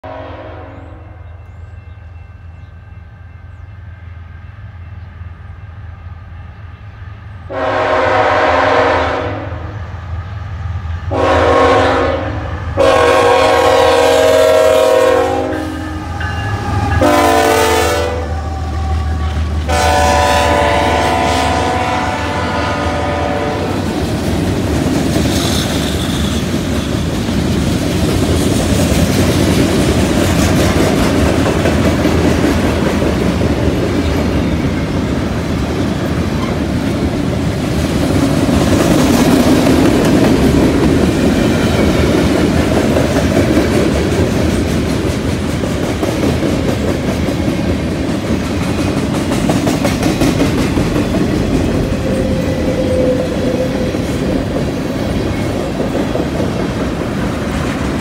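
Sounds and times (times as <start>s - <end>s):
locomotive air horn blasts: 0.0s - 1.3s, 7.5s - 9.8s, 11.1s - 23.8s
diesel locomotives droning: 0.0s - 58.0s
freight cars rumbling: 15.7s - 58.0s
wheels clacking on rail joints: 23.8s - 58.0s.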